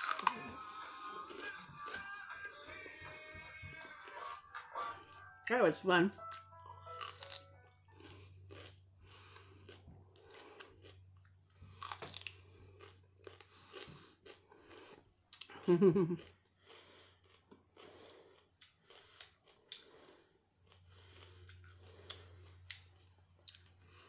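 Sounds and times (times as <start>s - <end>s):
celery crunching while chewed: 0.0s - 0.4s, 6.3s - 24.0s.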